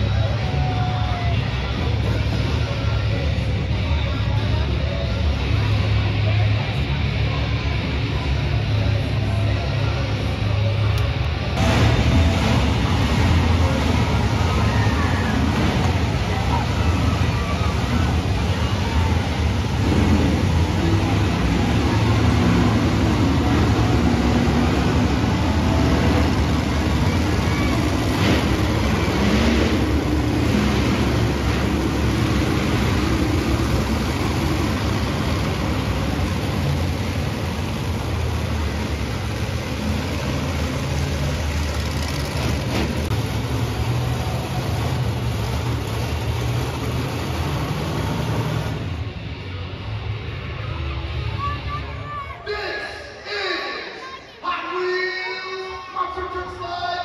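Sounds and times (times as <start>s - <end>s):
truck engine running loud: 0.0s - 52.2s.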